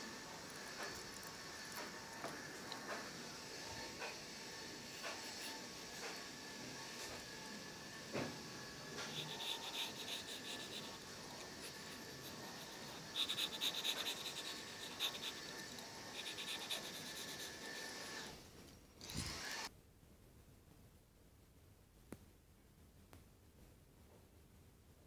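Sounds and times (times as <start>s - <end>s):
pencil scratching on paper: 4.9s - 7.4s, 8.1s - 18.3s.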